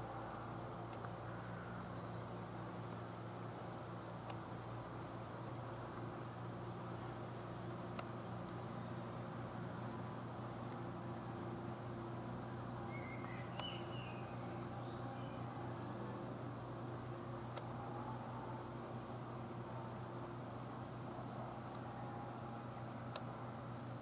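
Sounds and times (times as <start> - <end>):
steady low hum: 0.0 - 24.0
soft clicks: 0.9 - 1.2, 4.2 - 4.4, 8.0 - 8.6, 13.2 - 13.8, 17.5 - 17.7, 23.1 - 23.3
very high chirp: 12.8 - 15.4
warbling bird call: 12.8 - 15.8.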